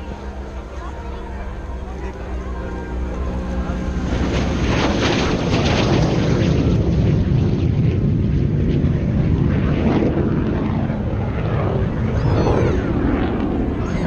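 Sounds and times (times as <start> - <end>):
aircraft engine noise: 0.0 - 14.0
faint falling tone: 12.1 - 13.1.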